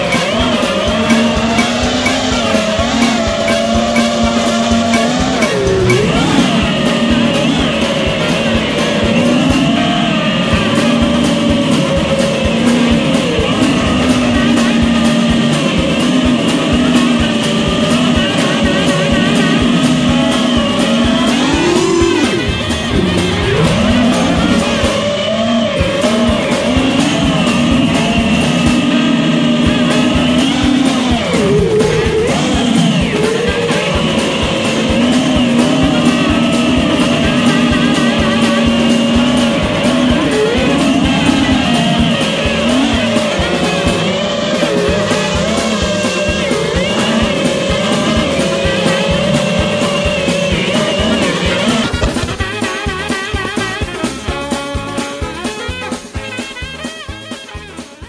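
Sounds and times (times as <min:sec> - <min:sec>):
quadcopter motors whining: 0:00.0 - 0:52.5
background music: 0:00.0 - 0:58.0.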